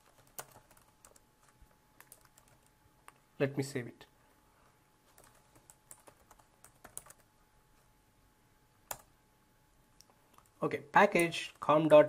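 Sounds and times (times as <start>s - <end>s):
keyboard typing: 0.0s - 3.2s, 5.1s - 7.3s, 8.9s - 9.1s.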